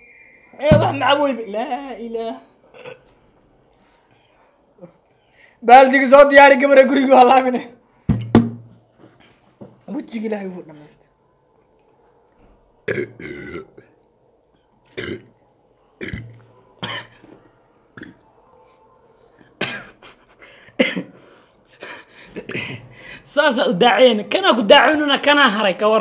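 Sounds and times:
men burping: 2.7s - 3.1s, 12.9s - 13.9s, 14.9s - 15.3s, 16.0s - 17.3s, 18.0s - 18.2s, 19.6s - 21.2s, 21.8s - 23.0s.

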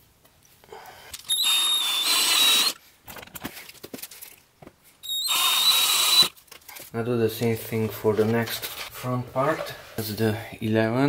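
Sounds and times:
cordless drill whining: 1.2s - 2.8s, 5.0s - 6.3s.

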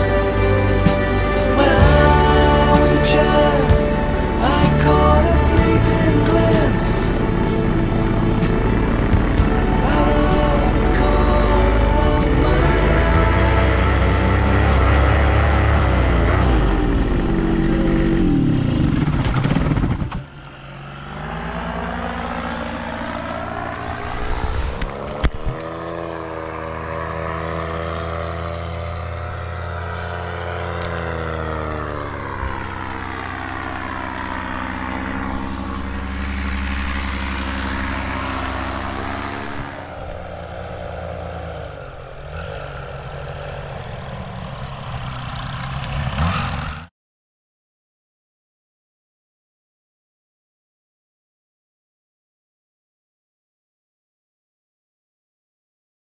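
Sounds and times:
paramotor engine idling: 0.0s - 23.7s.

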